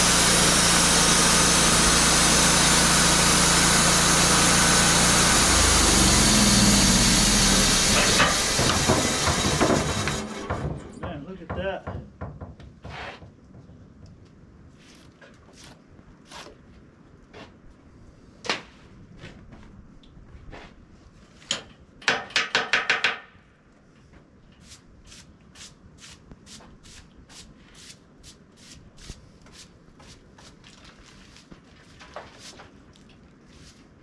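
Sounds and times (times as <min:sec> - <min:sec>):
hand brush scrubbing a log: 0:24.6 - 0:34.0.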